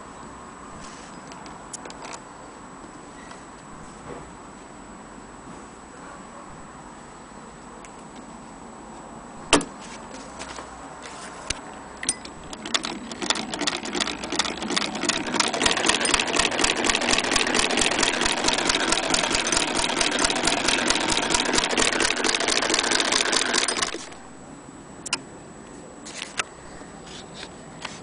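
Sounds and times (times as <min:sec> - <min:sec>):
sewing machine needle clicking: 0:12.1 - 0:24.2.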